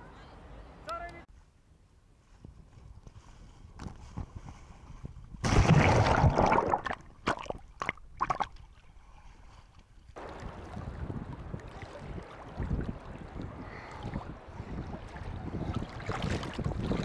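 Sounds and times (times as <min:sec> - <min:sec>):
small waves splashing: 0:09.6 - 0:17.0.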